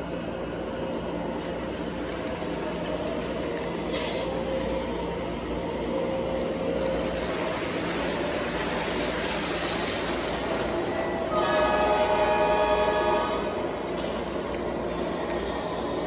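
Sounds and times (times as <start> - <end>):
model train wheels rolling: 0.0 - 12.4
model locomotive horn: 10.5 - 14.1.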